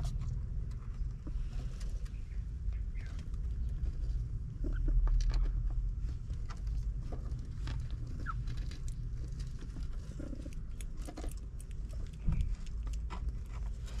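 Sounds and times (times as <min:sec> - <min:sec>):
kittens clicking and squeaking: 0:06.4 - 0:14.0
cat purring: 0:08.9 - 0:14.0.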